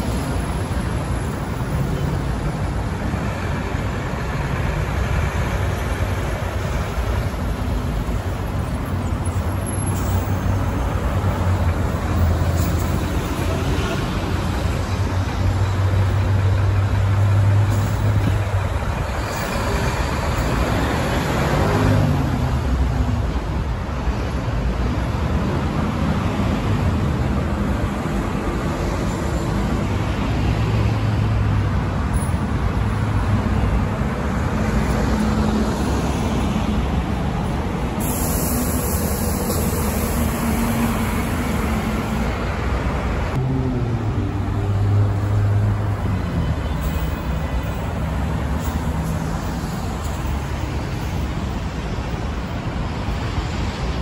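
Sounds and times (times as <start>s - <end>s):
traffic engine rumble: 0.0s - 54.0s.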